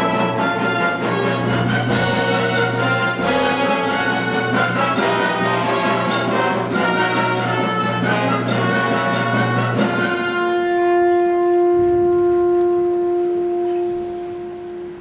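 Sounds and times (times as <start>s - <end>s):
orchestra playing: 0.0s - 15.0s
long held note: 10.3s - 15.0s.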